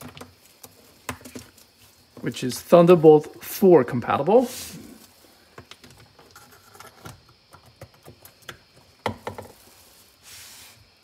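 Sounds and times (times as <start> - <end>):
cable handling taps and rustles: 5.0 - 9.6.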